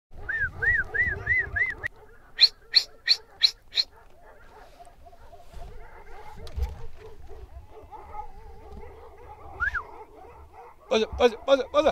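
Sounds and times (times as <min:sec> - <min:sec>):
dog barking: 0:00.2 - 0:11.9
short high calls: 0:00.3 - 0:03.9.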